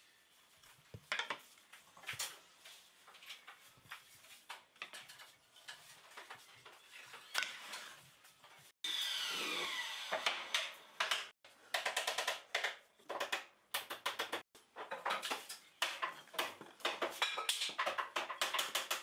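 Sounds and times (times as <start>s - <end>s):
wooden discs clattering: 1.0s - 1.5s.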